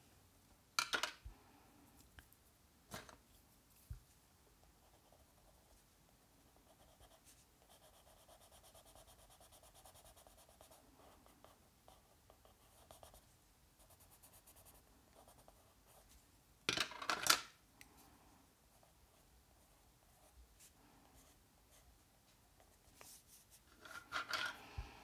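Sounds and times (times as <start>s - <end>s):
pencil scratching on paper: 4.8s - 5.6s, 6.6s - 13.2s.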